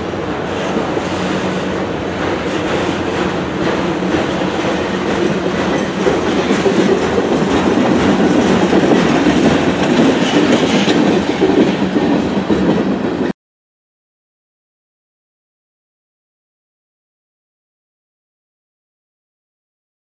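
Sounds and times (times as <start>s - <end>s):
freight train wheels rumbling: 0.0s - 13.3s.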